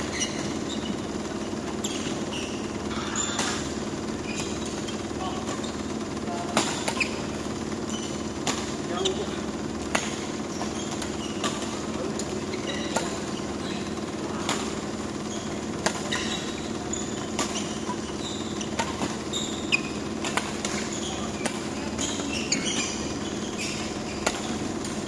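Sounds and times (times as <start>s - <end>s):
rackets striking shuttlecock: 0.0s - 25.0s
shoes squeaking on court floor: 0.0s - 25.0s
steady low hum: 0.0s - 25.0s.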